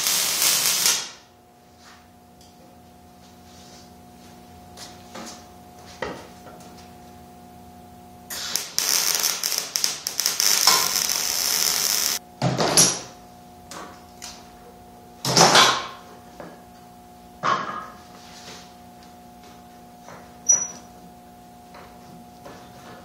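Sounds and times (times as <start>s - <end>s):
welder arc crackling and sizzling: 0.0s - 1.3s, 8.3s - 12.2s
steady electrical hum: 0.0s - 23.0s.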